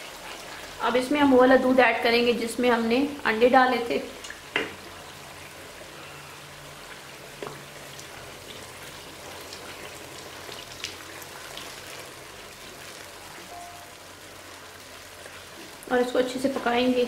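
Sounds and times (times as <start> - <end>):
ghee sizzling in a hot pan: 0.0 - 17.0
sharp frying pops: 4.2 - 4.9.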